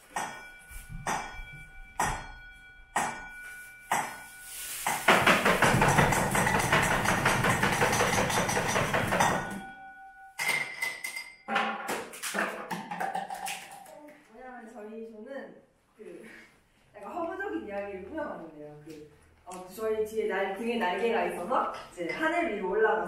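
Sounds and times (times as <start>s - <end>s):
metallic percussion strikes: 0.0s - 11.8s.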